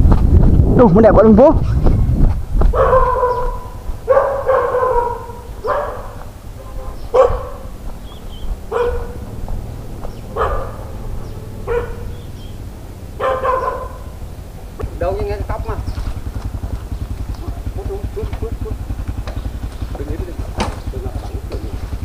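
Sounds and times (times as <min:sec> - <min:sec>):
dog barking: 0:02.7 - 0:07.8, 0:08.6 - 0:09.4, 0:10.2 - 0:12.4, 0:13.2 - 0:14.2.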